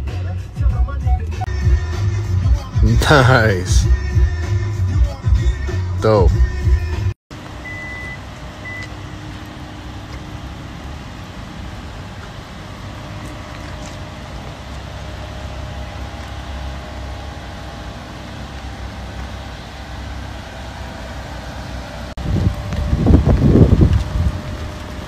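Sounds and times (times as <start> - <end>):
car engine low rumble: 0.0 - 25.0
high electronic beep: 1.0 - 1.5, 7.6 - 8.9.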